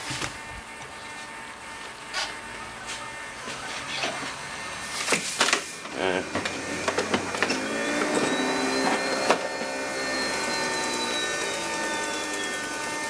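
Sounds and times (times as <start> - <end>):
model jet turbine whining: 0.4 - 13.0.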